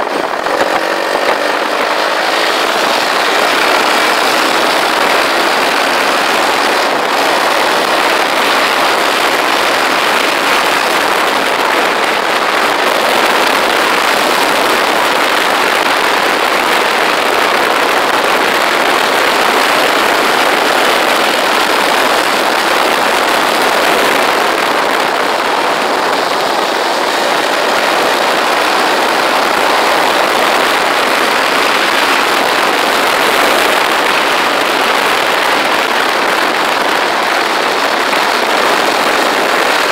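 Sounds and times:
motorcycle engine: 0.0 - 39.9
wind and road noise: 0.0 - 39.9.

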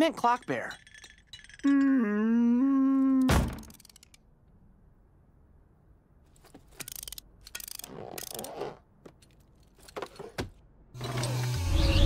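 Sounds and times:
wind-up key ratcheting clicks: 6.9 - 8.4.

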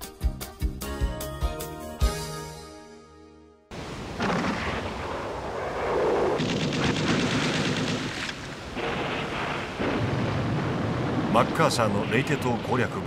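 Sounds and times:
shell bursts rumbling: 4.1 - 12.9
rapid gunfire crackle: 4.2 - 13.0.

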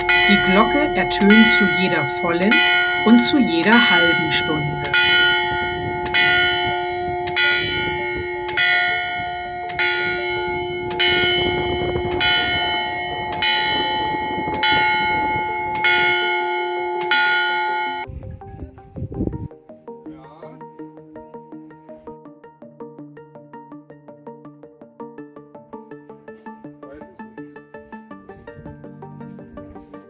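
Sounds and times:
church bell ringing: 0.0 - 18.2.

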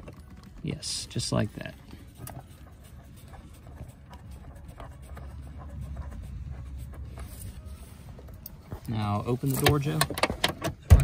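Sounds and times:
low rumble: 5.0 - 8.8.

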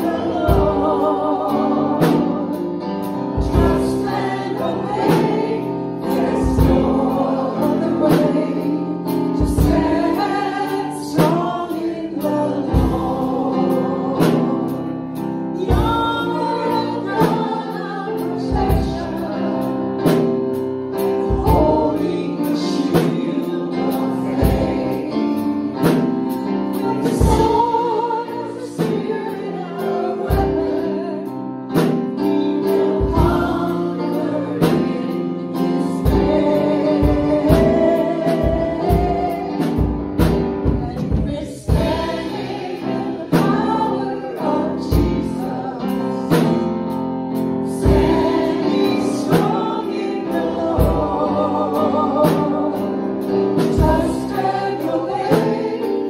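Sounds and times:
instrumental accompaniment with beat: 0.0 - 56.0
vocal group singing worship song: 0.0 - 56.0.

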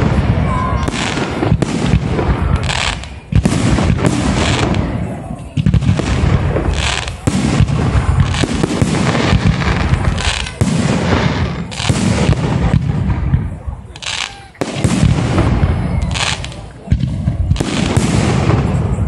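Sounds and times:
loud firework blast: 0.0 - 19.0.

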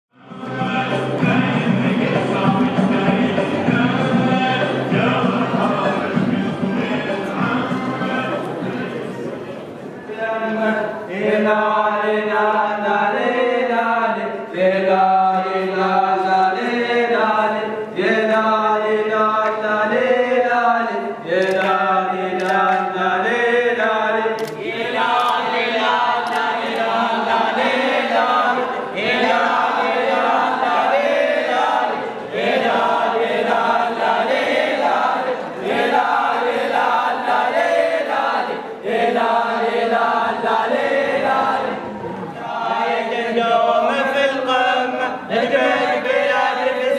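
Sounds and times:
men chanting together: 11.1 - 46.9.

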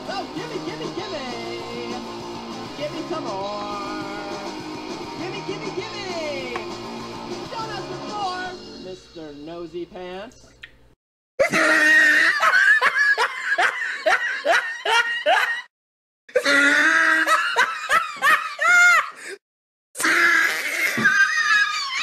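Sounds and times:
high-pitched laughter: 11.4 - 15.7, 16.4 - 19.2.

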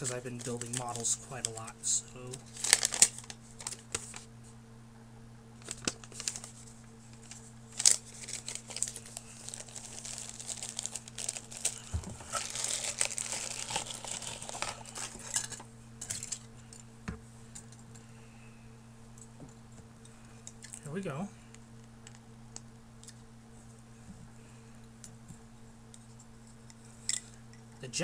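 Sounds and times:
plastic bag crinkling: 0.0 - 4.3, 5.6 - 16.5.

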